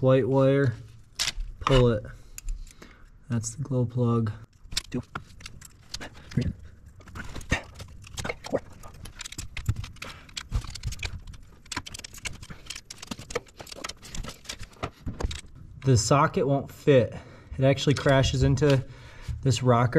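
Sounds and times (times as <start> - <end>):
ratchet metallic clicks and knocks: 4.6 - 15.5.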